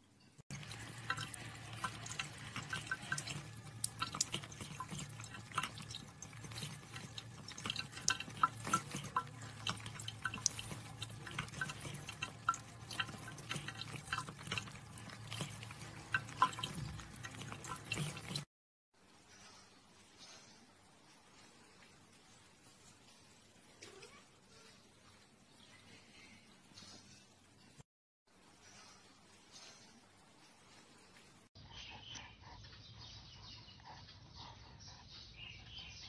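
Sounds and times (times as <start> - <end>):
low pump hum: 0.5 - 18.5
water trickling and dripping: 0.5 - 18.5.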